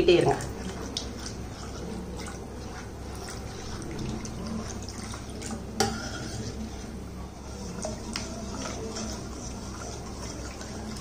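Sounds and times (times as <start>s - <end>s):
ladle stirring sauce: 0.2s - 11.0s
milk trickling into a pan: 0.2s - 11.0s.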